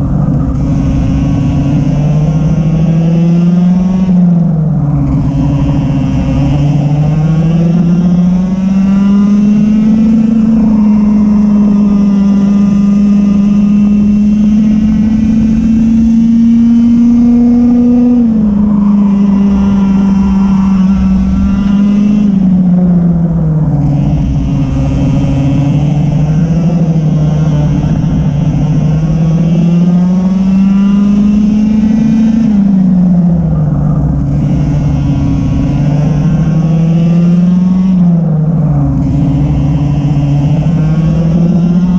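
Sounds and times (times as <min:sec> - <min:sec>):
racing kart engine: 0:00.0 - 0:41.9.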